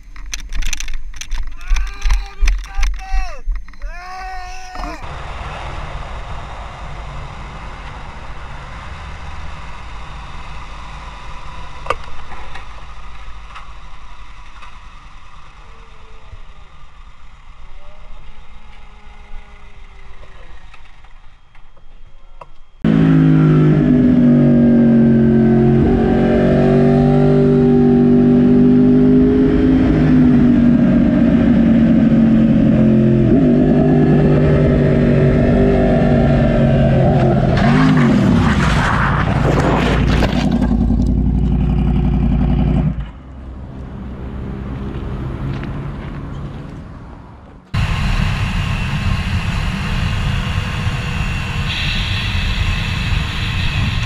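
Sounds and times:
wind rumble: 0:00.0 - 0:11.8, 0:22.8 - 0:54.0
motorcycle road noise: 0:00.0 - 0:54.0
motorcycle engine running loud: 0:40.5 - 0:43.0.

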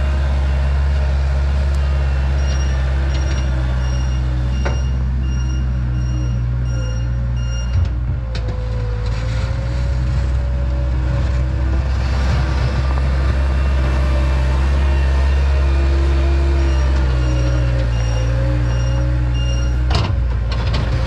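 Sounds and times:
loader engine whining under load: 0:00.0 - 0:21.0
reversing alarm beeping: 0:01.7 - 0:07.8, 0:16.5 - 0:19.9.

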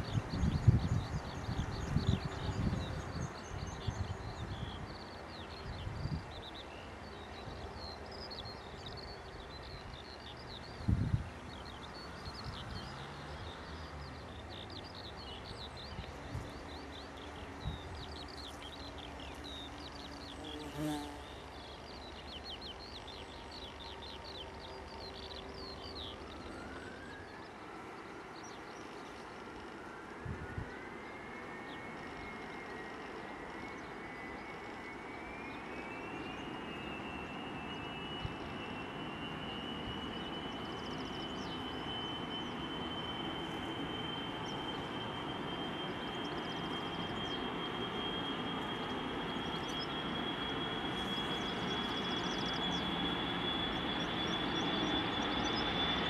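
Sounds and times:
jet engines spooling up: 0:21.3 - 0:56.0.

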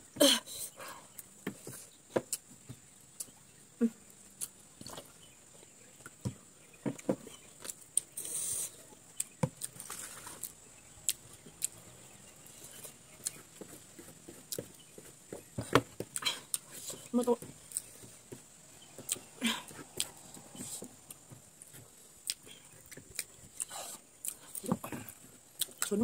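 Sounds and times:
crackling rustle: 0:07.5 - 0:11.8.

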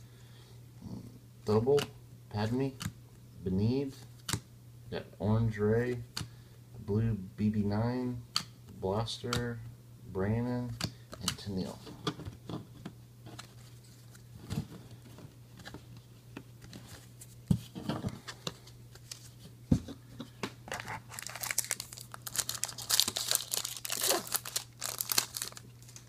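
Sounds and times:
foil wrapper crinkling and tearing: 0:20.7 - 0:26.0.

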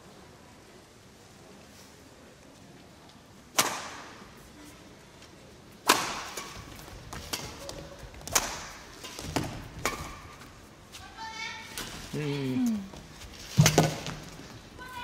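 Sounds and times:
badminton racket hitting shuttlecock: 0:05.8 - 0:10.5.

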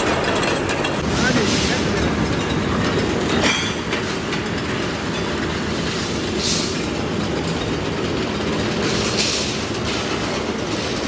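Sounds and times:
metal clank: 0:00.0 - 0:06.8
rolling mill machinery rumble: 0:00.0 - 0:11.0.

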